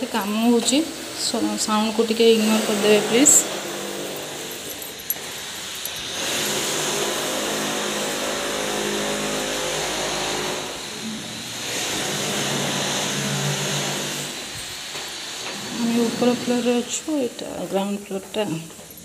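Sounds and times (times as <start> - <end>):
construction machinery drone: 2.2 - 17.1.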